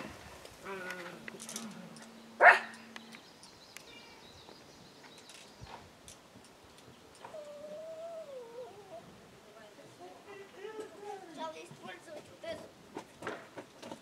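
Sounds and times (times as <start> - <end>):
dog barking: 2.4 - 2.8.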